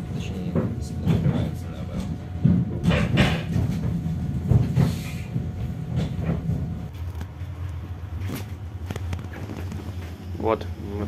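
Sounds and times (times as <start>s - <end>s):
railbus engine hum: 0.0s - 11.0s
knocks and rattles of car body: 0.5s - 6.8s.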